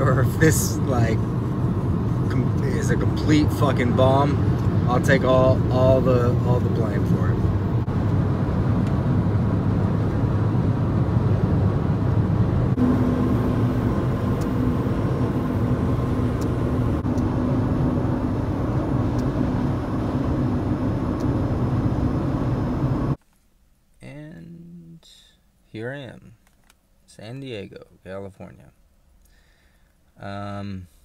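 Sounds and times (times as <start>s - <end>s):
car road and engine noise: 0.0s - 23.2s
faint steady hum: 0.0s - 31.0s.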